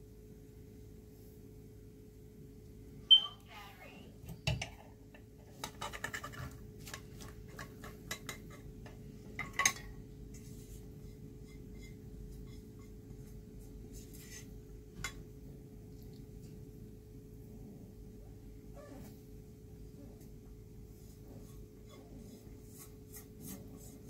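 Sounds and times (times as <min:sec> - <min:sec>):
food spreading in a glass dish: 0:10.3 - 0:14.6, 0:21.0 - 0:24.0.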